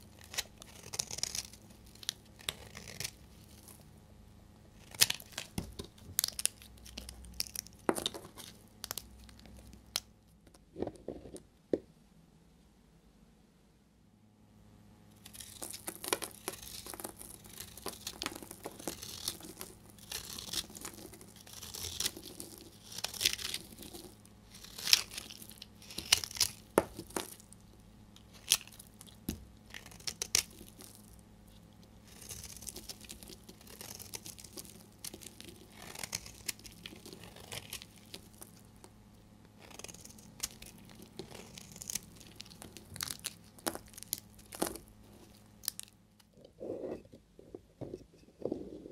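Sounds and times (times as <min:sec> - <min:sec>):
knife scraping soap: 0:00.0 - 0:03.8, 0:15.2 - 0:27.4, 0:32.0 - 0:38.3, 0:39.6 - 0:45.3.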